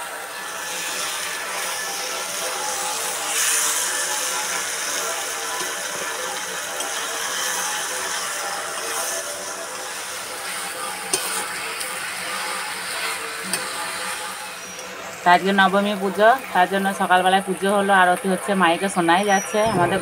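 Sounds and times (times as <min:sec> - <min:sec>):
spatula scraping a pan: 0:00.0 - 0:15.1
chicken sizzling in a pan: 0:00.0 - 0:19.6
music and voice from loudspeakers: 0:19.6 - 0:20.0.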